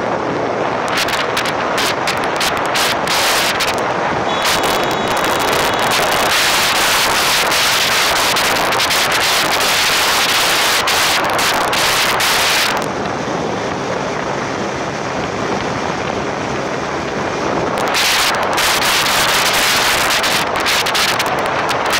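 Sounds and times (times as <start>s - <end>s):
road noise: 0.0s - 21.9s
wind rushing past vehicle window: 0.0s - 21.9s.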